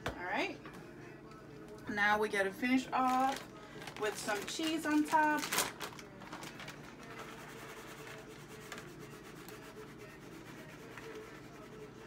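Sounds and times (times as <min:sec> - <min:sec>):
plastic bag rustling: 0:02.8 - 0:08.8.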